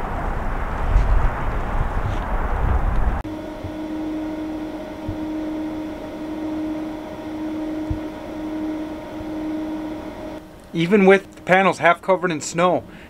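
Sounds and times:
faint low thumps: 3.2s - 11.5s
fan-like hiss: 3.2s - 13.0s
inverter electrical hum: 3.2s - 13.0s.

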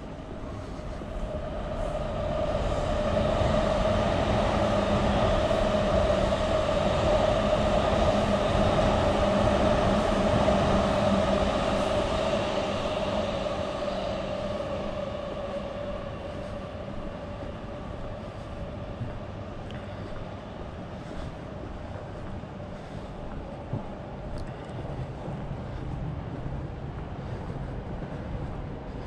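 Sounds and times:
electric train passing: 0.0s - 23.2s.

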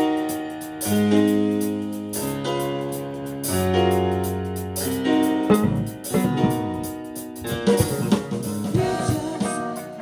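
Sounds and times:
keyboard chords: 0.0s - 10.0s
electric bass: 3.6s - 9.2s.

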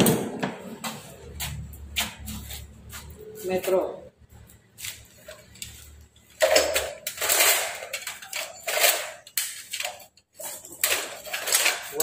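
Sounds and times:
welding accessories clattering: 4.4s - 12.0s.

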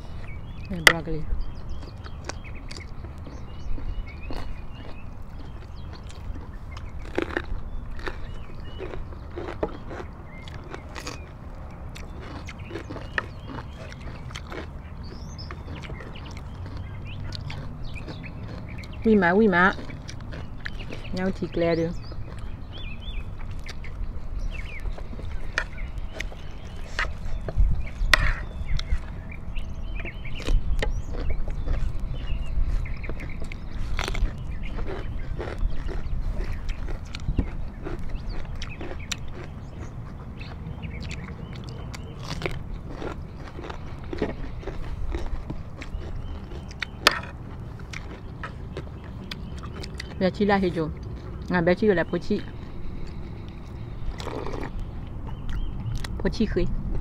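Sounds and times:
crunchy vegetable chewing: 0.0s - 57.0s.

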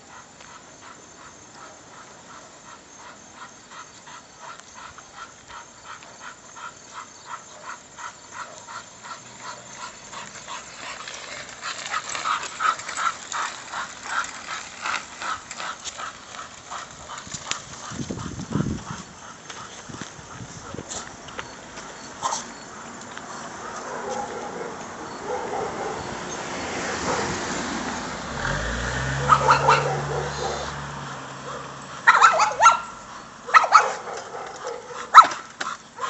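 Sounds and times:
dogs panting hard: 0.0s - 21.2s.

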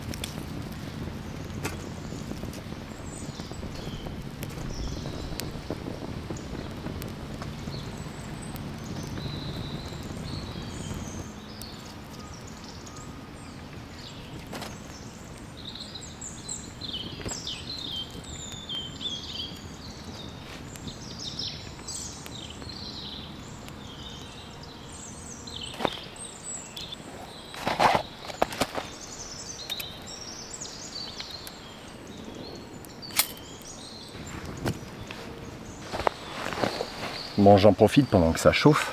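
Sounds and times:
small birds chirping: 0.0s - 38.9s
wood fire crackling: 0.0s - 38.9s.

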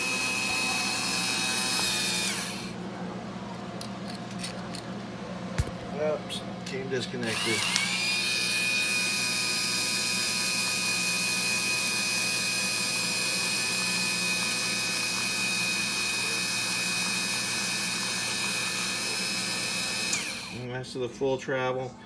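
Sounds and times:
electric motor and pump whining: 0.0s - 2.8s, 7.1s - 20.6s.

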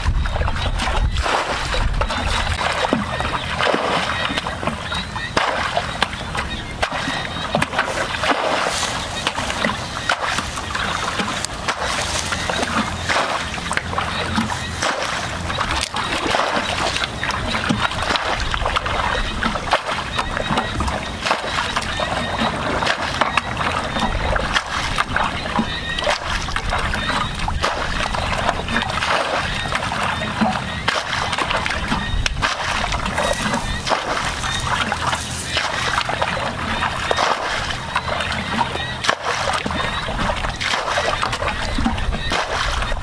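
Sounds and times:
hands splashing in muddy water: 0.0s - 43.0s.

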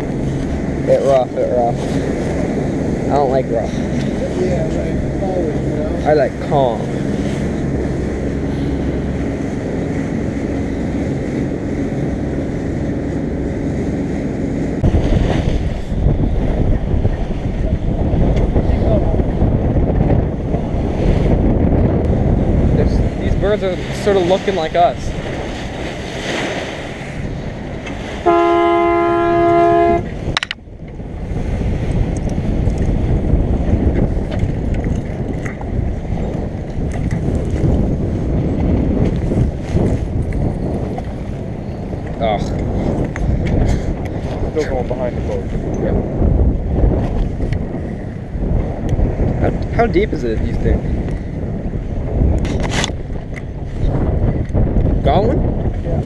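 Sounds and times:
boat engine droning: 0.0s - 56.0s
water noise: 0.0s - 56.0s
wind: 0.0s - 56.0s
boat horn blast: 27.8s - 30.5s.

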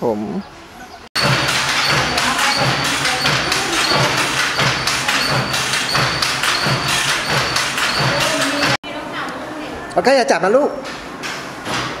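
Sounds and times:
wooden handlooms clattering: 1.2s - 8.8s.

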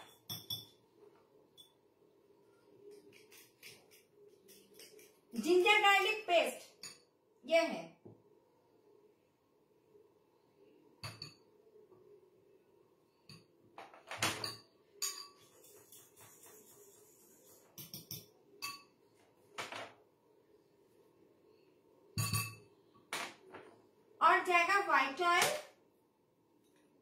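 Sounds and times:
cutlery clinking on ceramic bowl: 0.0s - 0.9s, 3.1s - 5.4s, 6.7s - 7.1s, 11.0s - 11.5s, 14.2s - 16.8s, 17.7s - 19.0s, 22.2s - 22.7s.

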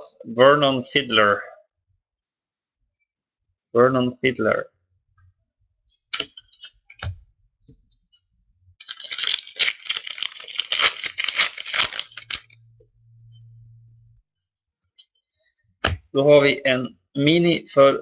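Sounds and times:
card pack wrapper tearing: 8.8s - 12.6s.

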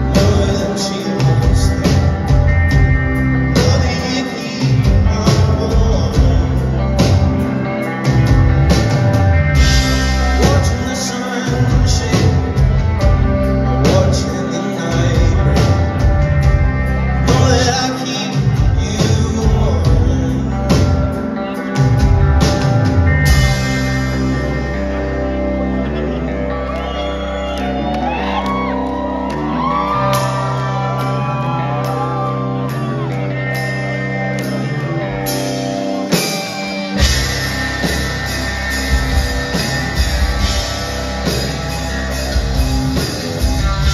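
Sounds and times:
driving drum beat: 0.0s - 24.6s, 35.2s - 43.9s
lead singer: 0.0s - 43.9s
rock band playing: 0.0s - 43.9s.

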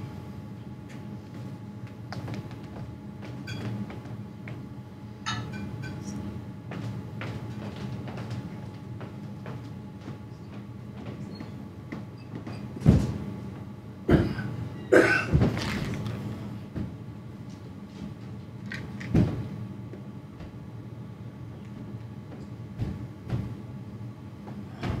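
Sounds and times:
low room hum: 0.0s - 25.0s
short cough-like sound: 14.1s - 15.4s.

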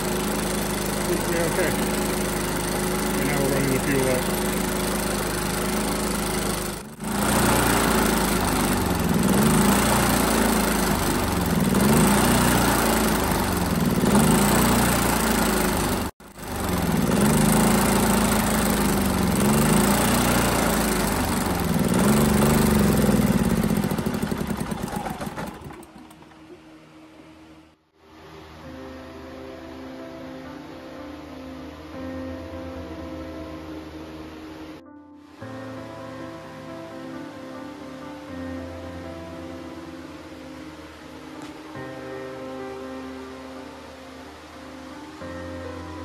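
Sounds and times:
generator engine running: 0.0s - 27.7s.

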